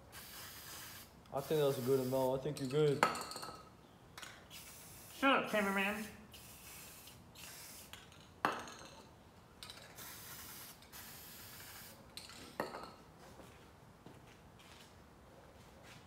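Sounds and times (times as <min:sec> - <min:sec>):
spray paint can hissing: 0:00.1 - 0:02.3, 0:04.5 - 0:08.1, 0:09.8 - 0:12.0.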